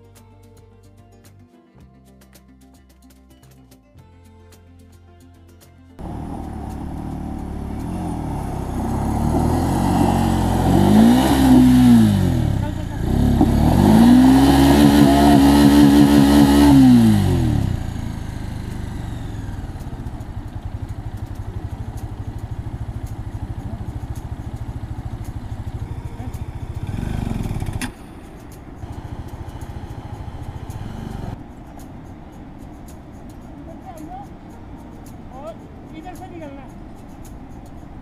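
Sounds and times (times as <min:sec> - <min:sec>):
motorcycle engine revving and idling: 0:06.0 - 0:31.4.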